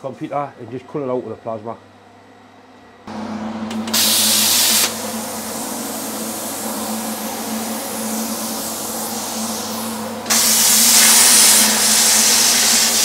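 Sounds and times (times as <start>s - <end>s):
low hum: 3.1s - 12.6s
loud rush of air: 3.1s - 13.0s
plasma cutter air hiss: 3.9s - 13.0s.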